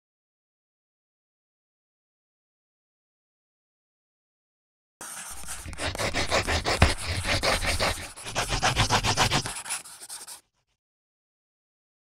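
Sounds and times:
scratchy strokes: 5.0 - 10.6.

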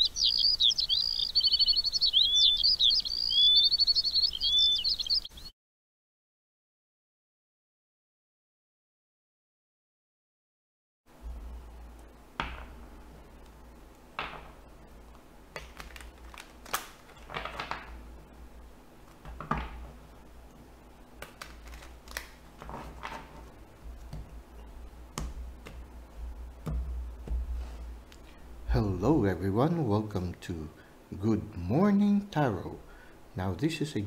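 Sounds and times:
steady low hum: 11.1 - 34.0
cards shuffled on wooden table: 15.6 - 18.0, 21.2 - 24.3.

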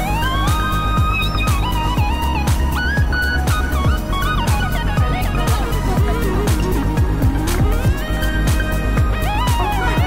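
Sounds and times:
deep kick drum: 0.0 - 10.0
high sliding melody: 0.0 - 10.0.

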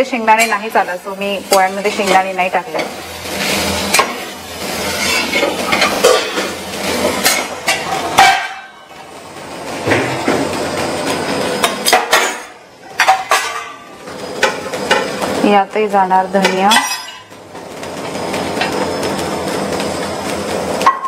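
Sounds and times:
spatula scraping metal pan: 4.7 - 6.5.

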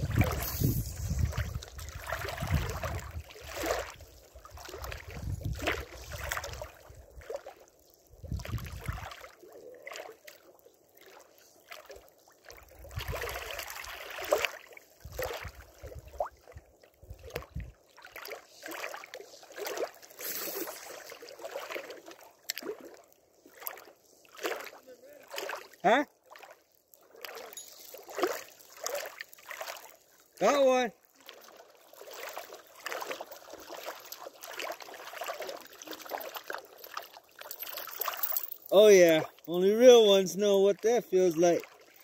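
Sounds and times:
wind rumbling on microphone: 0.0 - 7.3, 8.1 - 9.1, 12.8 - 13.5, 15.0 - 17.8
lake water lapping and splashing: 0.0 - 42.0.

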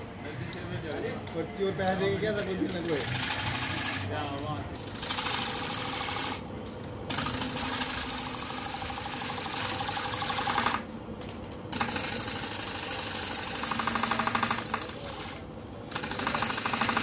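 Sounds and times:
lathe running: 0.6 - 4.2
chisel scraping spinning wood: 2.4 - 4.0.

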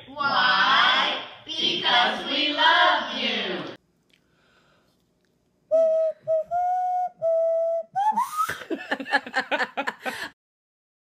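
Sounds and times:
handheld whistle notes: 5.7 - 8.6.

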